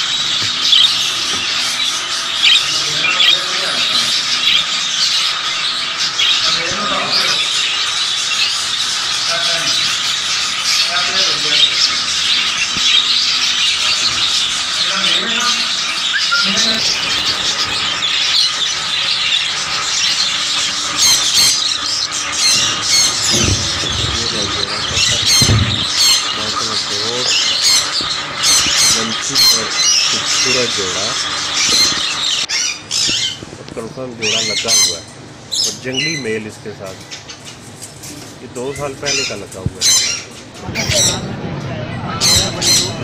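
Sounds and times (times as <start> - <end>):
caged birds chattering: 0.0 - 43.0
sharp bird squawks: 4.1 - 33.4.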